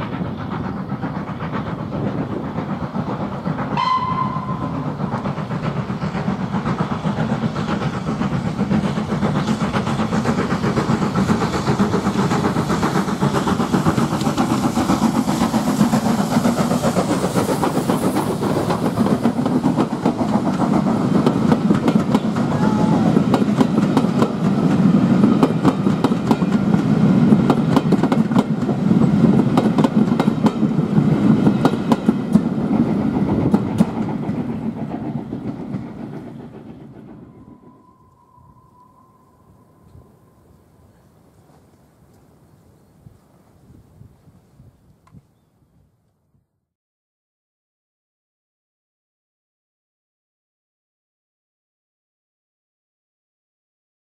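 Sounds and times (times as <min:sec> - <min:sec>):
train wheels clattering on rails: 0:00.0 - 0:40.2
steam hiss: 0:00.0 - 0:42.3
steam locomotive whistle: 0:03.7 - 0:05.2, 0:22.3 - 0:23.4, 0:37.2 - 0:41.0.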